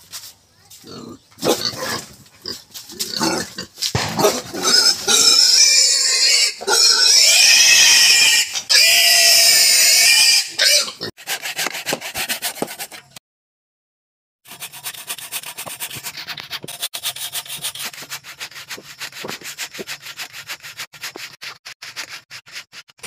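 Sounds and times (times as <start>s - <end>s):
pig grunting: 0.8s - 8.0s
pig squealing shrilly: 4.2s - 11.1s.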